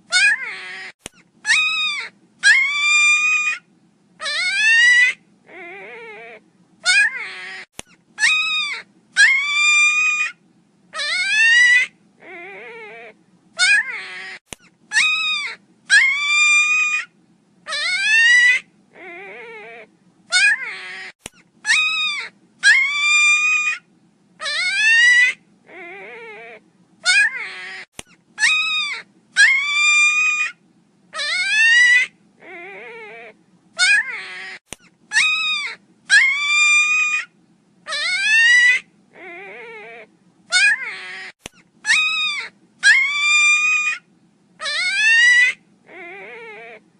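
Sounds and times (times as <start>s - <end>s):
puppy whimpering: 0.1s - 3.6s, 4.2s - 10.4s, 11.0s - 17.1s, 17.7s - 23.8s, 24.4s - 30.6s, 31.2s - 37.3s, 37.9s - 46.9s
puppy yelping: 0.1s - 46.9s
sharp click: 21.2s - 21.4s, 28.0s - 28.2s, 41.4s - 41.6s.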